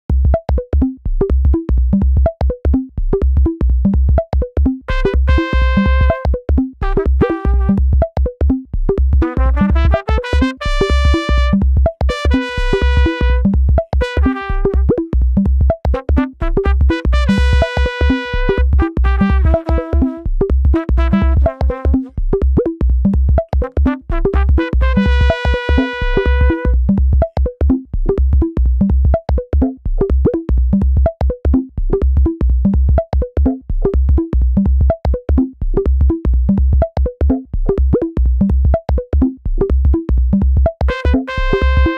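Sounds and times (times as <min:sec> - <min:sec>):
electronic synthesizer music: 0:04.9 - 0:08.3, 0:09.2 - 0:27.8, 0:40.9 - 0:41.9.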